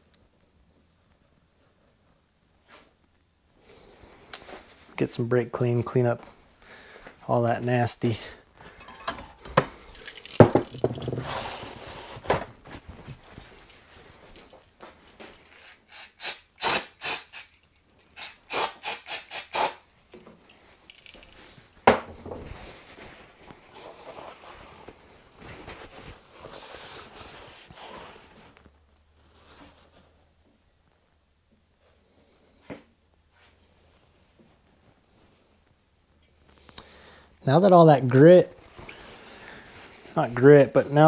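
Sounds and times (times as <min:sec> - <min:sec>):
aerosol spray hissing: 0:18.2 - 0:19.8.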